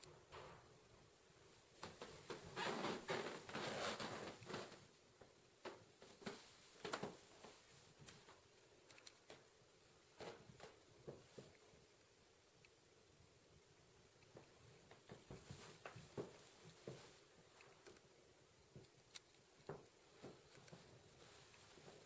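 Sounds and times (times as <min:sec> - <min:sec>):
faint rustling: 0:00.0 - 0:12.1, 0:14.2 - 0:22.0
footsteps: 0:14.4 - 0:17.7, 0:19.7 - 0:22.0.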